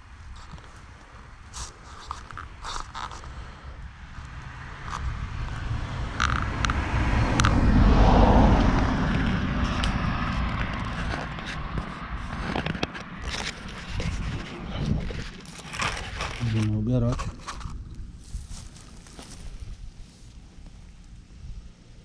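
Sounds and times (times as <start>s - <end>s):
fingers rubbing and tapping camera: 1.5s - 3.3s, 9.0s - 17.8s
low rumble: 3.2s - 16.6s.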